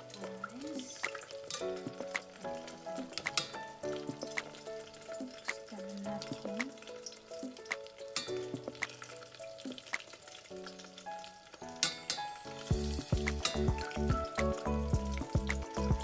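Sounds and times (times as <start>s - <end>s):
food sizzling in hot oil: 0.0s - 16.0s
background music with bass beat: 12.7s - 16.0s.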